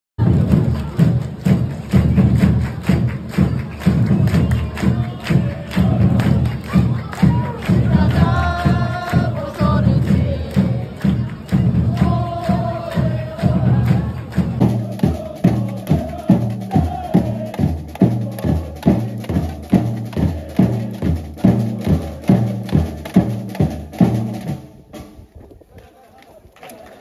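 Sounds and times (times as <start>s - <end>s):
surdo bass drums beating: 0.2s - 25.3s
fans singing a chant: 3.5s - 24.2s.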